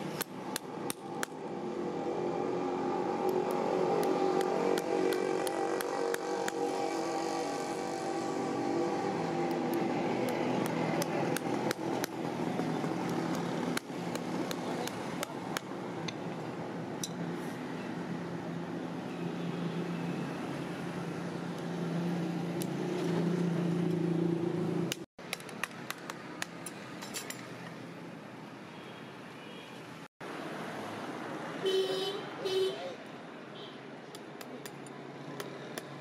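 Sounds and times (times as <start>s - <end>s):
engine hum: 0.0s - 25.1s.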